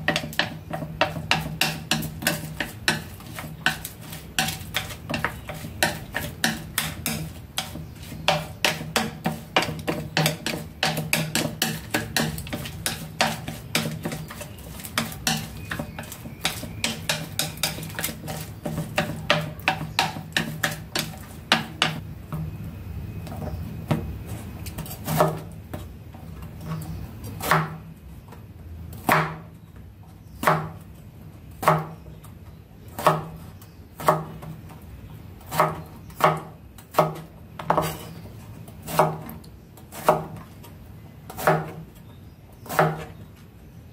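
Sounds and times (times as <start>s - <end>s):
knife chopping on cutting board: 0.0s - 22.0s, 24.7s - 25.9s, 27.4s - 27.8s, 29.0s - 29.5s, 30.4s - 30.8s, 31.6s - 32.0s, 33.0s - 33.4s, 34.0s - 34.5s, 35.5s - 38.2s, 38.8s - 39.3s, 39.9s - 40.4s, 41.3s - 41.8s, 42.6s - 43.1s.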